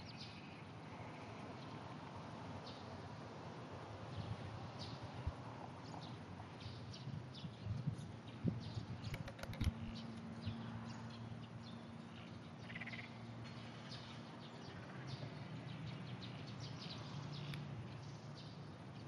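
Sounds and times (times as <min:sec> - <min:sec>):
sharp clicks: 0:09.0 - 0:10.0
distant frogs chirping: 0:12.6 - 0:13.2.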